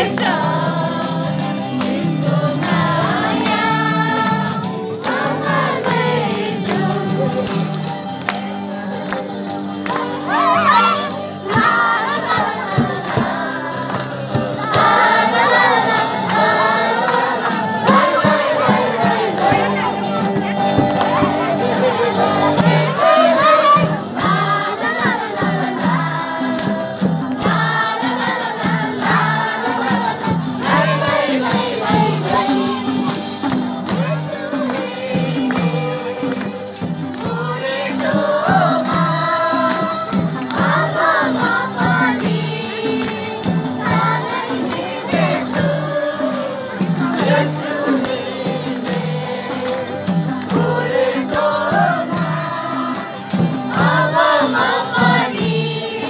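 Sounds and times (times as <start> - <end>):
crowd singing a worship song: 0.0 - 56.0
shaken percussion: 0.0 - 56.0
steady beat: 22.3 - 56.0.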